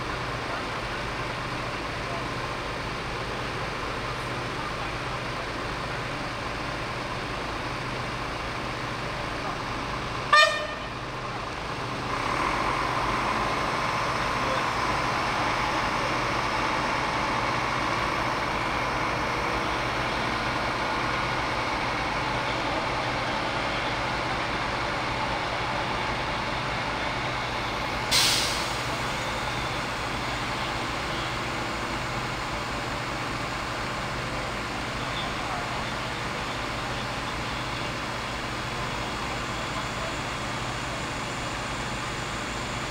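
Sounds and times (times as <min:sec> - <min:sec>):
diesel engine running: 0:00.0 - 0:42.9
air brake hiss: 0:28.1 - 0:28.9.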